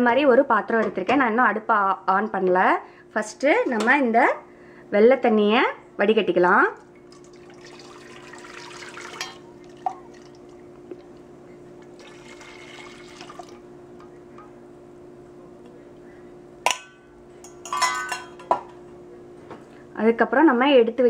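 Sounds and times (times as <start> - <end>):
syrup splashing into metal pot: 7.0 - 10.5.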